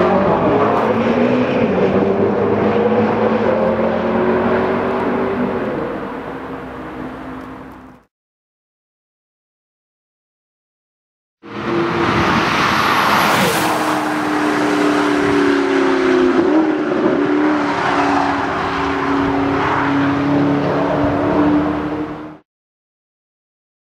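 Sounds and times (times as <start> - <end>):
racing car engine at high revs: 0.0 - 8.0, 11.4 - 22.4.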